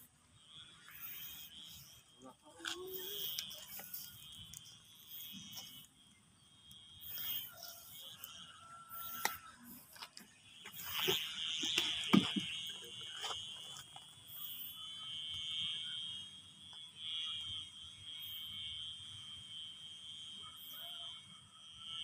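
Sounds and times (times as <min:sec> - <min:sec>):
kite hummer high whine: 0:00.0 - 0:22.0
plastic kite rustling and clicking: 0:02.5 - 0:05.8.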